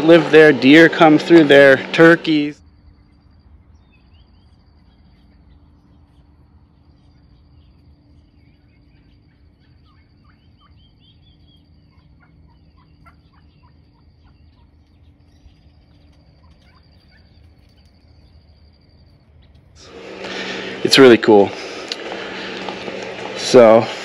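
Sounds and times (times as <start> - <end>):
steady high trill: 0.0 - 2.6, 19.8 - 24.0
steady low hum: 0.0 - 24.0
turkeys giving short high calls: 7.0 - 18.4.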